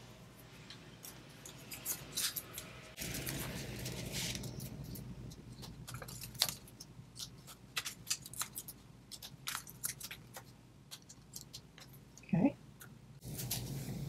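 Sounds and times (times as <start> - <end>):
paper crinkles and clicks: 1.0 - 12.0.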